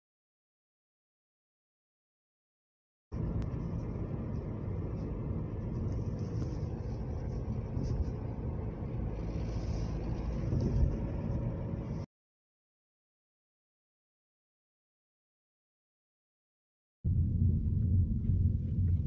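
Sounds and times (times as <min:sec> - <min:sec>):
car engine and road rumble: 0:03.1 - 0:12.1, 0:17.1 - 0:19.0.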